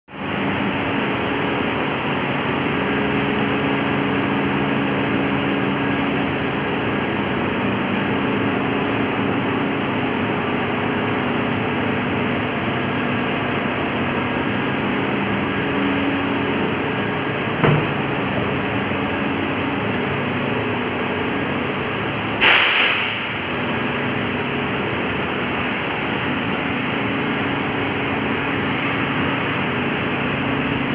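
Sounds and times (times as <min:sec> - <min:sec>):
diesel generator running: 0:00.1 - 0:30.9
brief loud burst of noise: 0:22.4 - 0:23.3.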